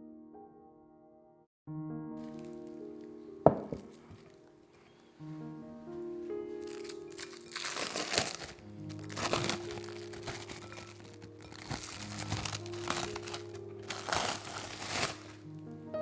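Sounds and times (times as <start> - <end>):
background music: 0.0 - 16.0
cling film crinkling: 2.2 - 3.1, 6.5 - 15.6.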